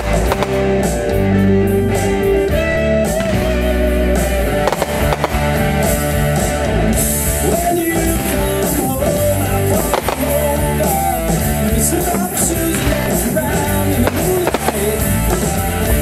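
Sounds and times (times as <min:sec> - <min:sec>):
rock song with guitar: 0:00.0 - 0:16.0.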